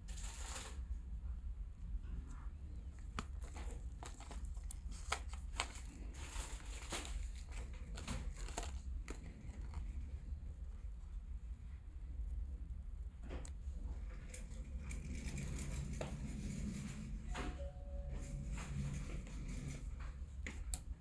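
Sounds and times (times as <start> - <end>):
steady low hum: 0.0 - 21.0
cable handling clicks and rubbing: 2.8 - 10.5.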